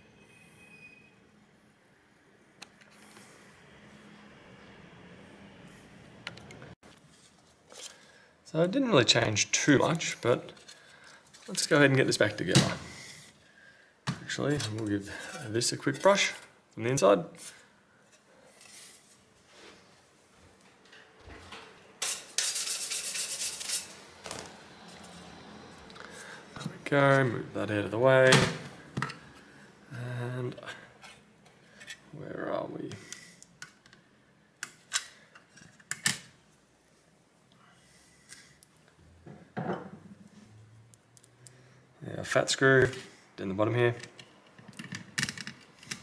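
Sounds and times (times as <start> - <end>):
brush scrubbing metal: 22.0 - 24.0.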